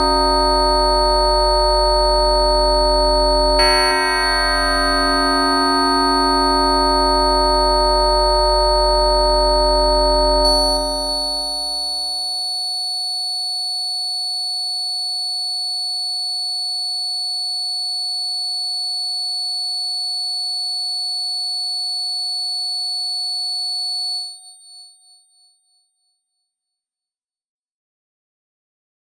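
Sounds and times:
electronic music: 0.0 - 12.2
held synthesizer tone: 0.0 - 12.5.

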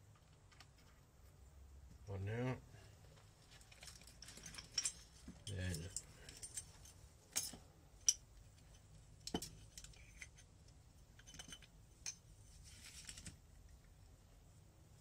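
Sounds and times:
metal engine parts clinking: 3.7 - 10.5, 11.2 - 12.3.

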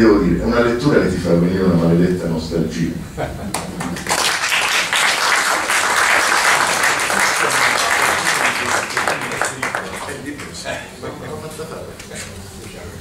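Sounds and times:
audience applauding: 3.5 - 10.7.

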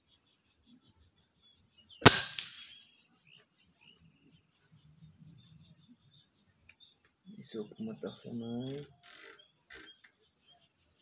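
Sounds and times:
air rifle shot crack: 2.0 - 2.8.

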